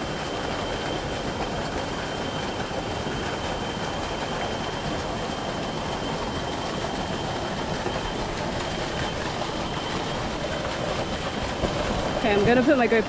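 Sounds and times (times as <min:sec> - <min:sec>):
water pouring from a pipe: 0:00.0 - 0:13.0
stream water rushing over rocks: 0:04.3 - 0:13.0.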